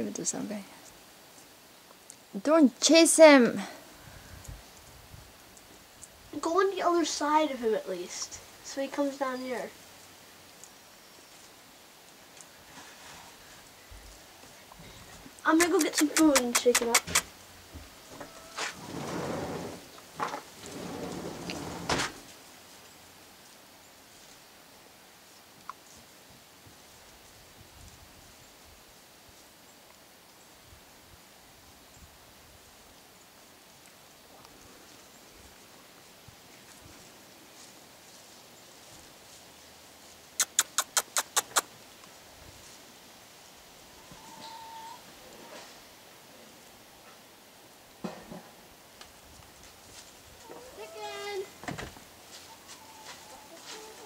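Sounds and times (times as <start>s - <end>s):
sharp loud clicks: 15.6s - 17.3s, 40.4s - 41.7s
chicken call: 18.1s - 18.8s, 44.0s - 45.0s.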